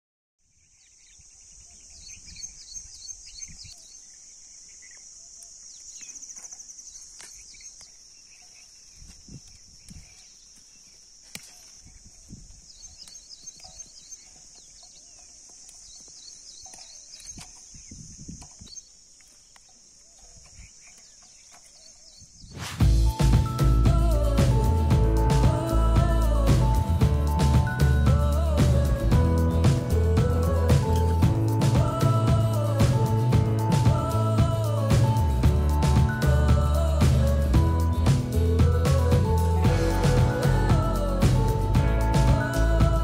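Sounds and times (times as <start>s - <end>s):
birds chirping: 0.4s - 43.0s
insect drone: 0.5s - 43.0s
rustles of picking beans: 0.8s - 23.2s.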